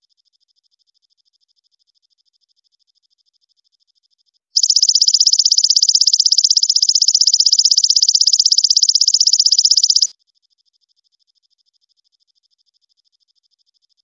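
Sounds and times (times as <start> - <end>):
faint trill: 4.6 - 10.1
katydid buzzy trill: 4.6 - 10.1.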